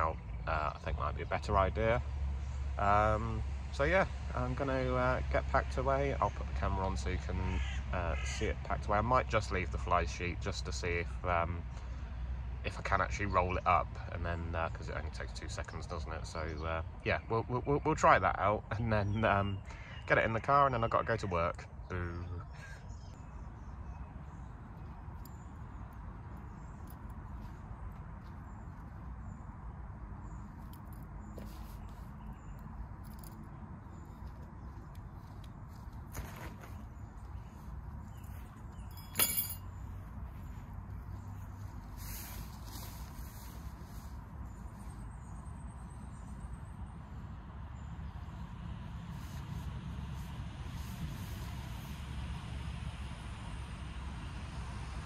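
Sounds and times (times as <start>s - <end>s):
outdoor background noise: 0.0s - 55.0s
faint rustling: 30.5s - 44.9s.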